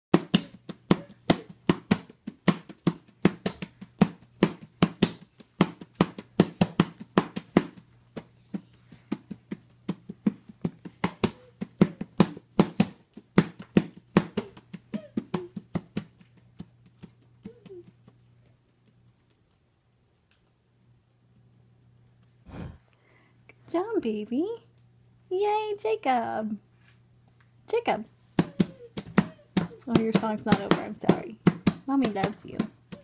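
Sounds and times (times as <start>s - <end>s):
hands slapping a book: 0.1s - 19.4s, 28.4s - 33.0s.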